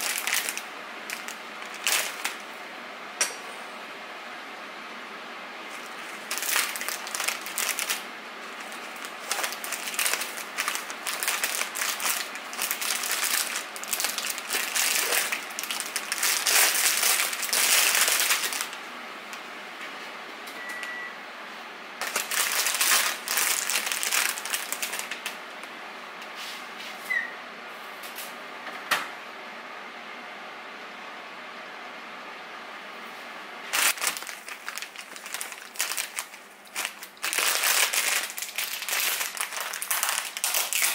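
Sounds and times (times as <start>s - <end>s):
plastic bag crinkling: 0.0s - 2.5s, 5.7s - 18.8s, 22.0s - 25.4s, 33.7s - 40.9s
scissors cutting plastic: 8.7s - 18.7s, 33.8s - 40.9s.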